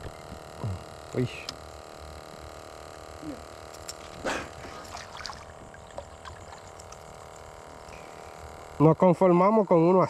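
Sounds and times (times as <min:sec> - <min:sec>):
dolphin splashing: 0:04.0 - 0:07.0
trickling water: 0:04.6 - 0:07.4.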